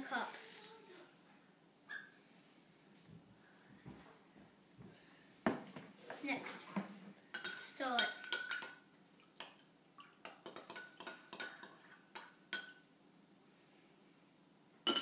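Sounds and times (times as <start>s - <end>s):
spoon clinking in ceramic mug: 7.4s - 8.8s.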